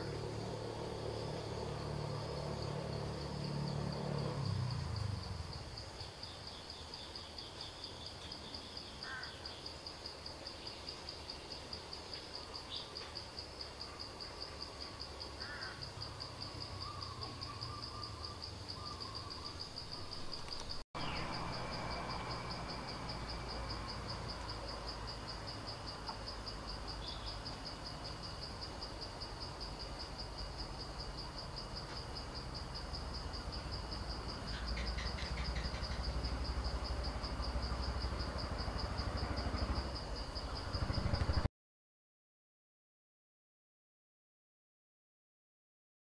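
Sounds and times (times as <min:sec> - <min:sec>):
insect chirring: 0:00.0 - 0:41.5.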